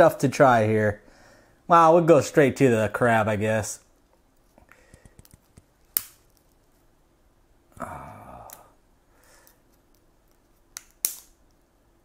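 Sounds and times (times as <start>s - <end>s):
man humming mm: 7.7s - 8.8s
crab shell snapping: 10.7s - 11.4s.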